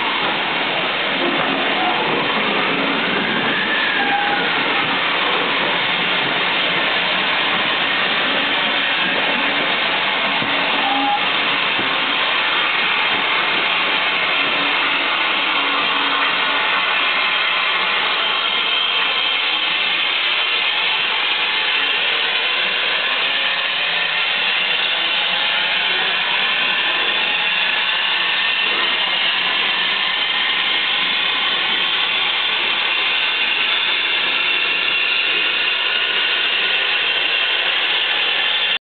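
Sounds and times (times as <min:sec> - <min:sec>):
steam hissing from locomotive: 0:00.0 - 0:38.8.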